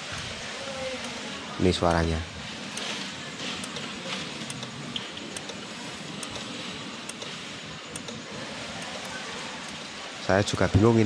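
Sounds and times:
steady hiss: 0.0s - 11.0s
control box clicking: 6.2s - 8.2s.

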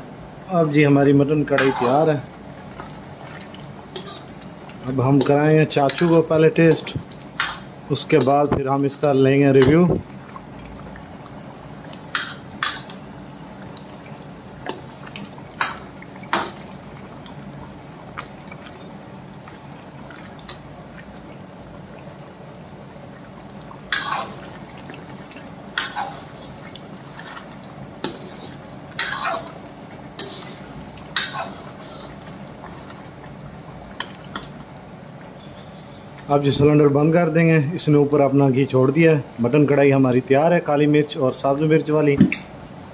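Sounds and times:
gravy simmering: 0.0s - 42.0s
metal spoon scraping a wok: 4.0s - 4.3s, 28.1s - 29.5s, 30.2s - 30.6s, 31.2s - 32.2s.

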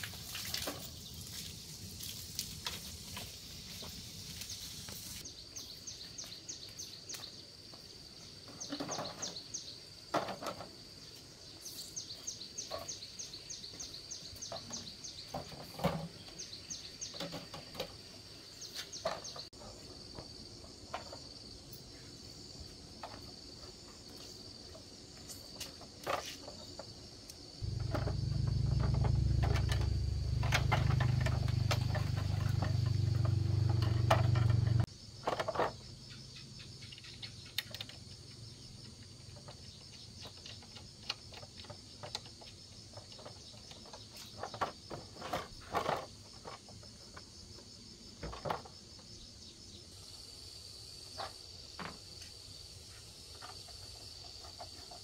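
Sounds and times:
insects trilling: 0.0s - 55.0s
motorbike parts being handled: 27.6s - 35.8s.

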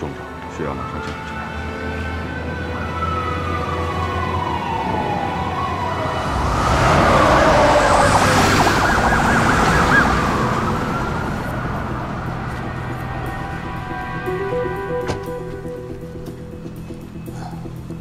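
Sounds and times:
ambulance siren warbling: 0.8s - 17.2s.

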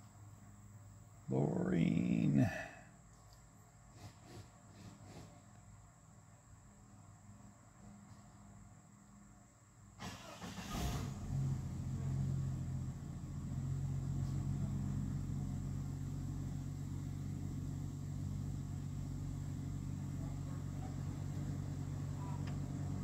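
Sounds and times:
car engine cranking and idling: 10.0s - 23.0s.

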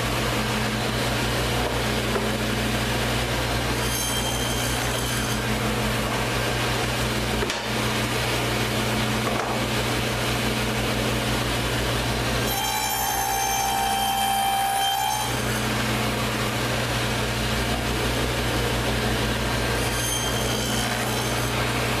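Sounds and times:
table saw humming: 0.0s - 22.0s
saw blade cutting board: 3.7s - 5.6s, 12.4s - 15.9s, 19.7s - 22.0s.

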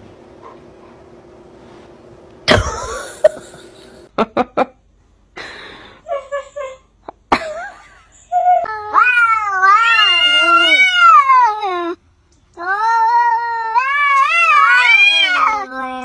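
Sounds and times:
woman laughing: 2.5s - 4.7s, 5.4s - 8.4s.

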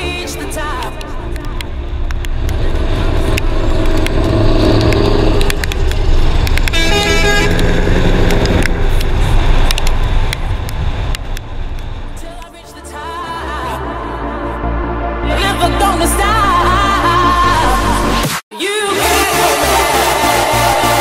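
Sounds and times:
diesel truck engine drone: 0.0s - 18.2s, 19.0s - 21.0s
air horn blowing: 5.3s - 8.8s.

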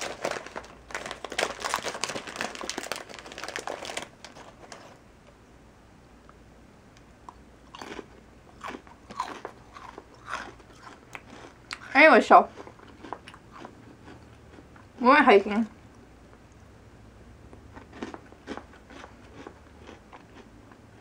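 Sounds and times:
cookie crunching: 0.0s - 5.0s, 7.3s - 14.8s, 17.7s - 21.0s
foil snack bag crinkling: 0.0s - 5.0s.

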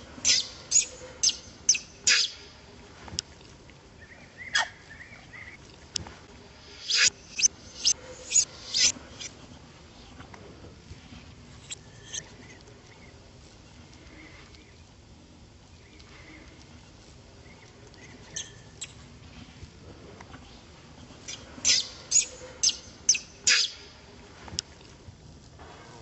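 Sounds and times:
baby monkey distress squeals: 0.3s - 2.3s, 21.7s - 23.7s.

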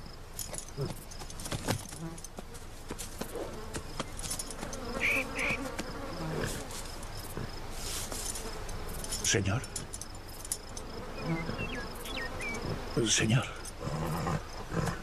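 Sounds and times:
insects buzzing: 0.0s - 15.0s
rustling through grass: 0.8s - 9.4s.

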